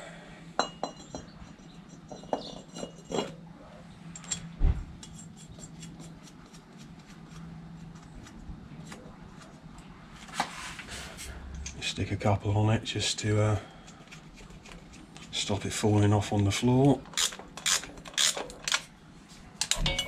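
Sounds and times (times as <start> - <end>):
metal clinking and knocking: 0.6 - 3.3, 19.6 - 20.0.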